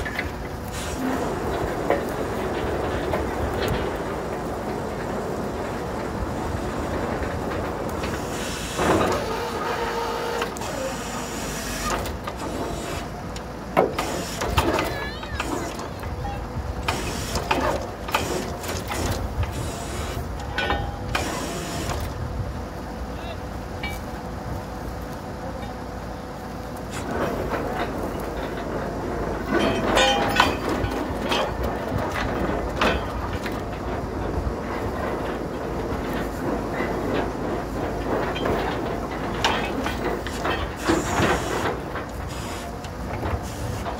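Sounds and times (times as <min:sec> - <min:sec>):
drilling rig running: 0:00.0 - 0:43.9
metallic clatter and ringing: 0:20.5 - 0:21.0, 0:23.8 - 0:24.2, 0:29.4 - 0:33.9
mechanical clattering: 0:26.9 - 0:43.9.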